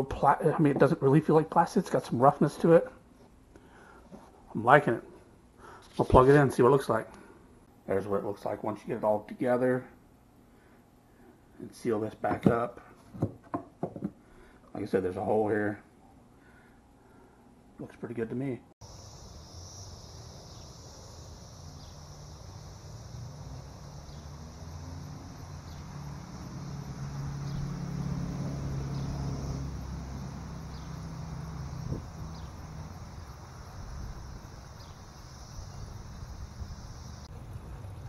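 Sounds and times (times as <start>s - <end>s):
insect chirring: 18.8s - 37.3s.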